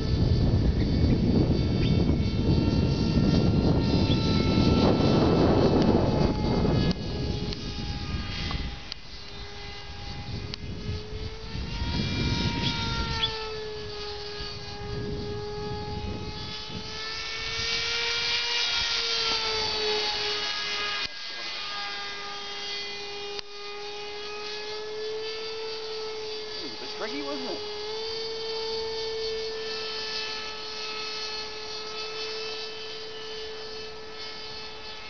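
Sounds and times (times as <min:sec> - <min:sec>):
wind rumble on microphone: 0:00.0 - 0:20.8
model airplane engine droning: 0:00.0 - 0:35.0.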